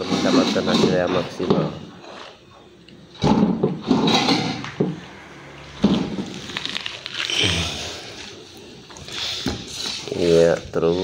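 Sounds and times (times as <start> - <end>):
paint roller on wet paint: 9.0 - 11.0.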